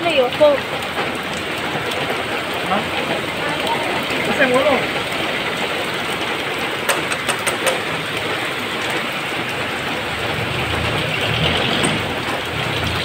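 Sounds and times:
heavy rain on wet street: 0:00.0 - 0:13.0
vehicle engine rumbling: 0:00.0 - 0:13.0
sharp close taps: 0:06.8 - 0:07.9.

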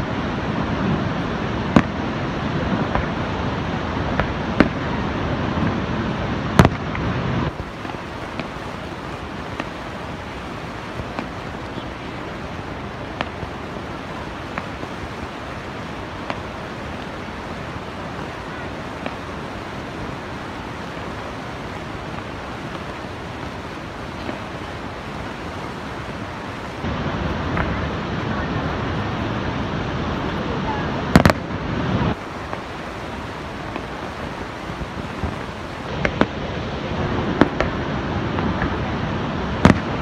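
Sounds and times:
distant fireworks crackling: 0:00.0 - 0:40.0
waterfall roaring: 0:00.0 - 0:40.0.

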